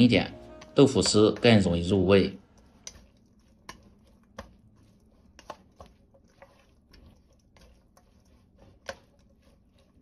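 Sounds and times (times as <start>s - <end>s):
wet squishing of food: 0.0s - 10.0s
chopsticks clicking on steel bowl: 0.5s - 4.6s.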